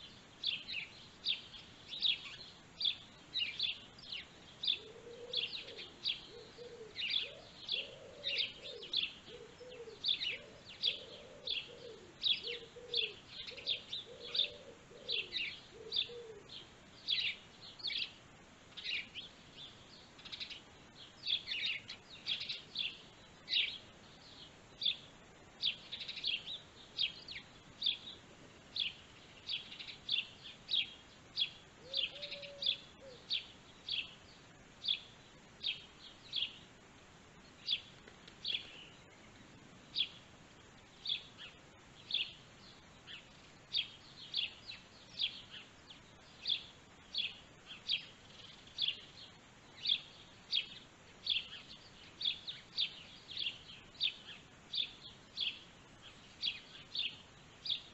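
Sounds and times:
birds chirping: 0.0s - 57.9s
lower bird call: 0.5s - 18.1s, 28.8s - 34.2s.

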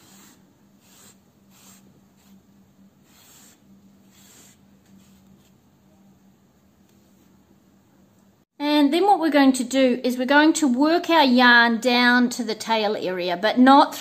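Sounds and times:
low steady hum: 0.0s - 9.0s.

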